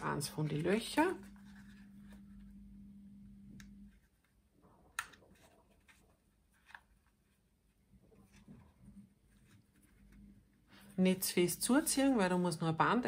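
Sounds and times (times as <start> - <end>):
faint steady hum: 0.0 - 13.0
card rustling: 3.8 - 10.9.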